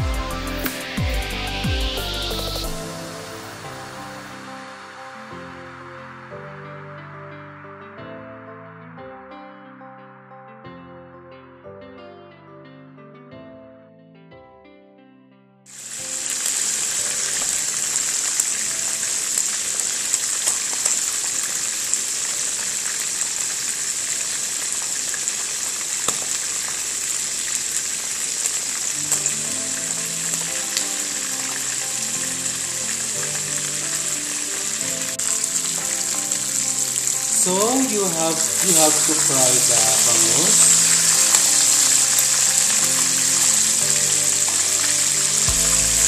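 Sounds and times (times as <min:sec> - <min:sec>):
fish sizzling in hot oil: 0:15.7 - 0:46.0
oil popping and crackling: 0:15.7 - 0:46.0.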